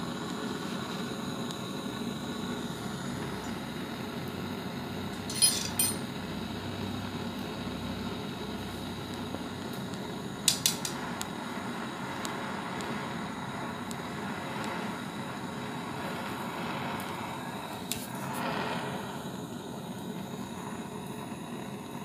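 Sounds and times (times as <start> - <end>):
gas torch hissing: 0.0 - 22.0
metal rod clinking on spoon: 5.3 - 6.1.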